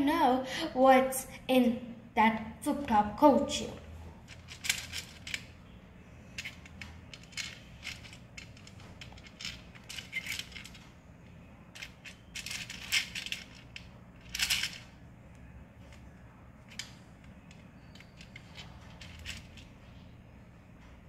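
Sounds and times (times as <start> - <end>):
plastic pegs clattering: 4.3 - 5.5, 6.4 - 10.9, 11.8 - 14.9, 16.7 - 19.7.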